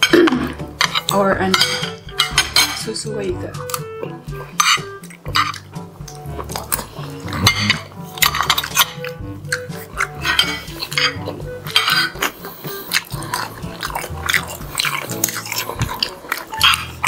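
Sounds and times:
cutlery clinking on plates: 0.0 - 2.9, 4.5 - 5.6, 7.4 - 9.2, 10.0 - 12.3, 16.5 - 17.0.

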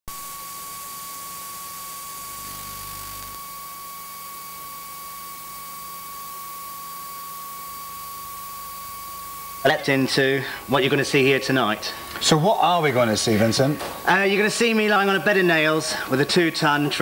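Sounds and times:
tape hiss: 0.1 - 3.8.

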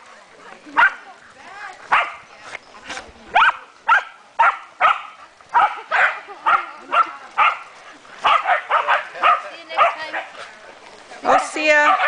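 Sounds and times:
dogs barking: 1.9 - 2.3, 3.3 - 10.4, 11.3 - 12.0.

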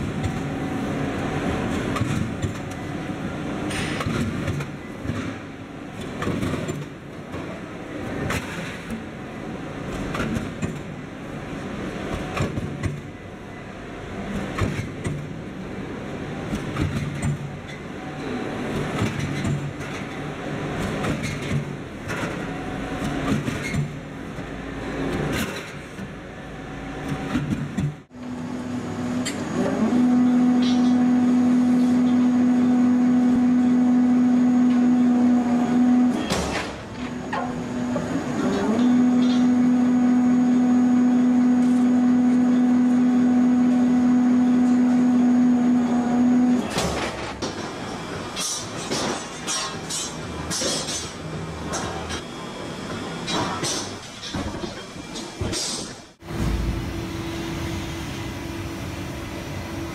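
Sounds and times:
roll forming machine rumbling: 0.0 - 59.9
machine clanks: 46.7 - 52.3, 53.2 - 57.0.

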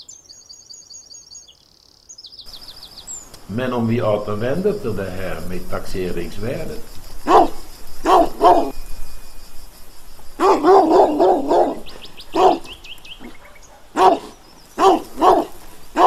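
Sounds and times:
faint high chirps: 0.0 - 16.0
dog barking: 7.2 - 8.7, 10.4 - 16.0.

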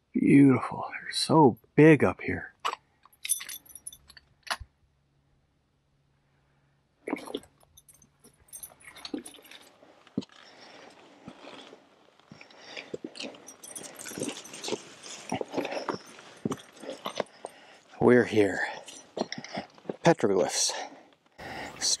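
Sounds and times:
light metallic jingle: 3.1 - 4.2, 7.3 - 9.8, 12.8 - 20.9
footsteps crunching on gravel: 10.2 - 17.6.

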